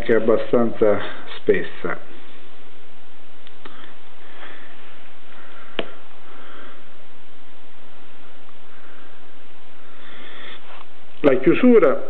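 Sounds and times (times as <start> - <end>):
steady hiss: 0.0 - 12.0
person sniffing: 9.9 - 10.9.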